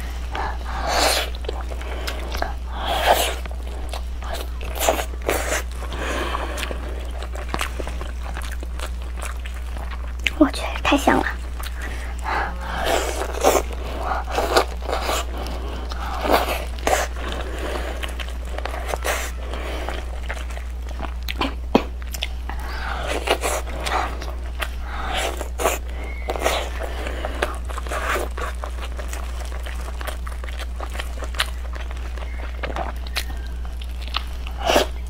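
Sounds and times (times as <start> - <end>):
person chewing meat off bone: 0.0 - 10.4, 11.3 - 35.0
low hum: 0.0 - 35.0.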